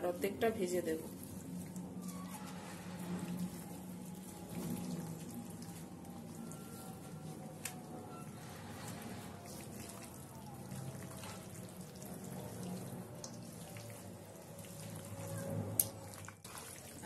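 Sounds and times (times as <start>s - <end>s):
hand squelching meat in bowl: 1.0s - 7.7s.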